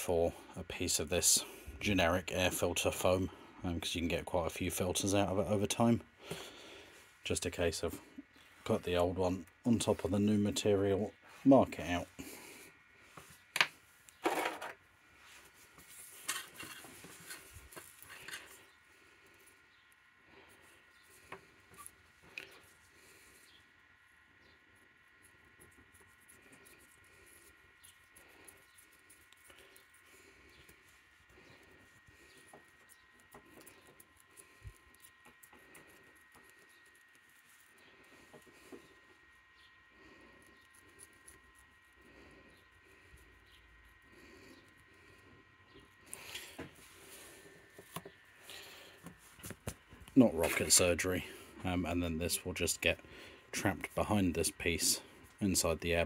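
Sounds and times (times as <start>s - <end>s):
handling noises on workbench: 13.2s - 14.8s, 15.8s - 18.5s
scraping rustle: 14.2s - 18.7s.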